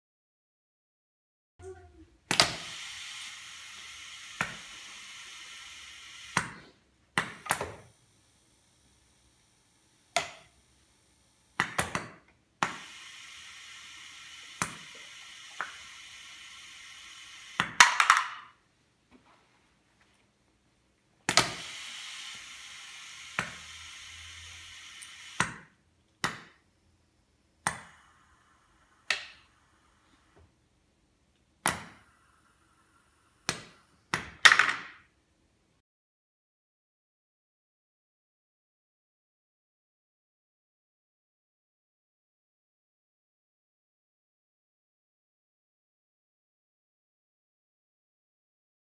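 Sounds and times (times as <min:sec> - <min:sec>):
compressed air hissing: 0:02.4 - 0:06.8, 0:12.6 - 0:17.7, 0:21.4 - 0:25.5.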